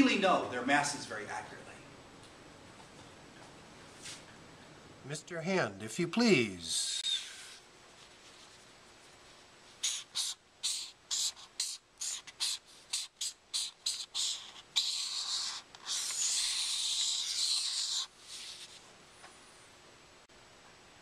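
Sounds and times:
marker scratching on paper: 9.8s - 18.8s.

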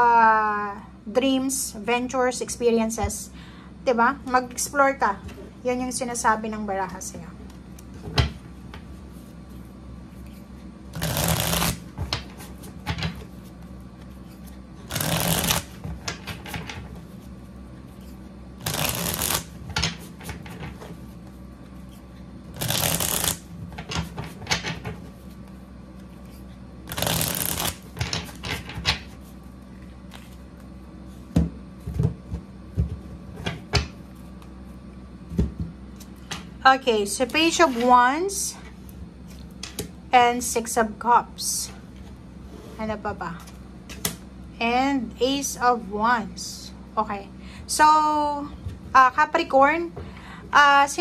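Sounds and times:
cards being shuffled: 9.1s - 32.1s.

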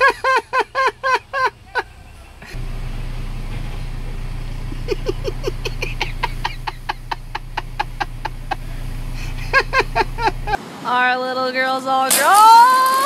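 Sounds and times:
cackling laughter: 0.0s - 2.6s, 3.6s - 10.6s
low engine rumble: 0.0s - 11.0s.

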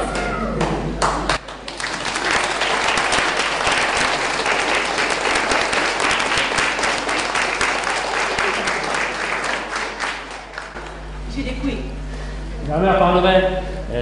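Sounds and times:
crowd applauding: 0.6s - 11.1s.

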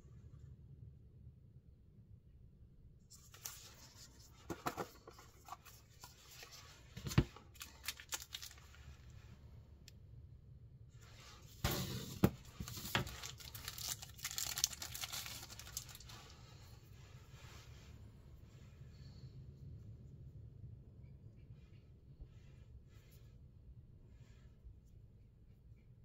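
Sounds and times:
packaging crinkling and tearing: 7.3s - 9.0s, 12.4s - 16.3s.

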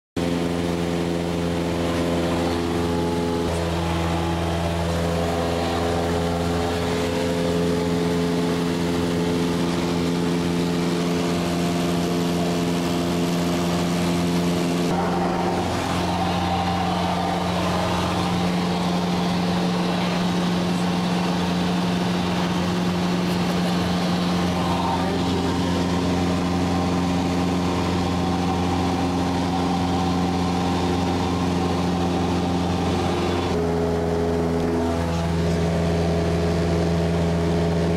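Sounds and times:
airplane engine droning: 0.2s - 37.9s
rushing noise: 13.2s - 33.6s.

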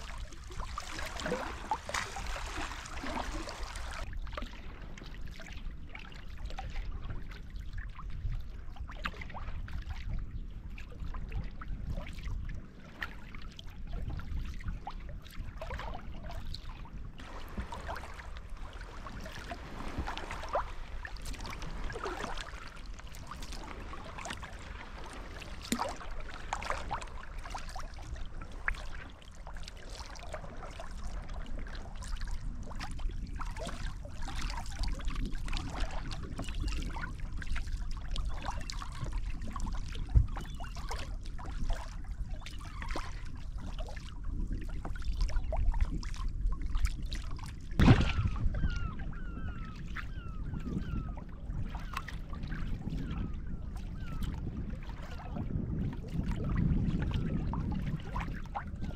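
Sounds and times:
water splashes and drips: 0.0s - 7.8s, 8.8s - 10.1s, 12.9s - 49.5s
paddle pulling through water: 0.0s - 58.9s
water trickling along hull: 0.0s - 58.9s.

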